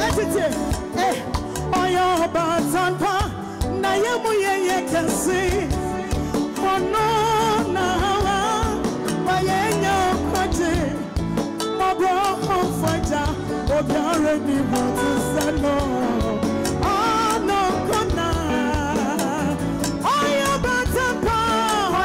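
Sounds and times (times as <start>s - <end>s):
woman singing gospel: 0.0s - 11.2s, 11.8s - 22.0s
band with guitar and drums: 0.0s - 22.0s.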